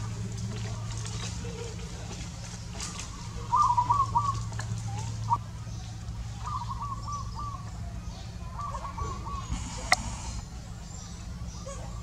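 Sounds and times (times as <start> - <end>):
bird calling: 0.0 - 12.0.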